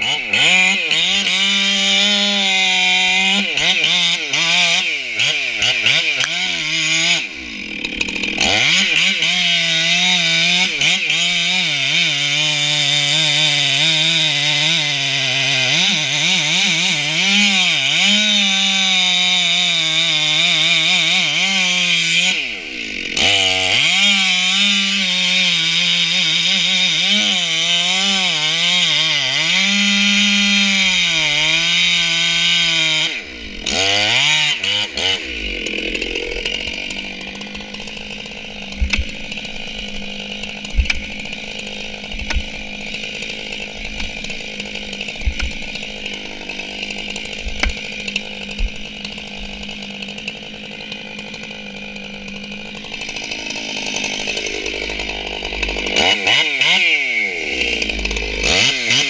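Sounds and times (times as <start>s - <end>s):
chainsaw cutting wood: 0.0s - 59.0s
sharp knocks: 38.6s - 40.0s, 40.6s - 41.4s, 42.0s - 42.8s, 43.8s - 44.3s, 45.0s - 45.8s, 47.3s - 49.6s.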